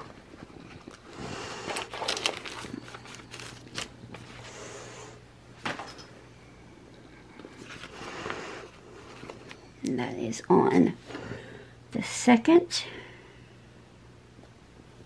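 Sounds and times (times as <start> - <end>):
paper rustling with clicks: 1.7 - 4.4.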